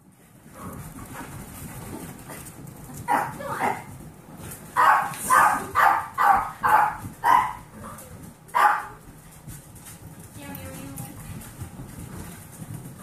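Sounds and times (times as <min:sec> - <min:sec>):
small dog barking: 0:03.1 - 0:03.7, 0:04.8 - 0:07.7, 0:08.5 - 0:09.0.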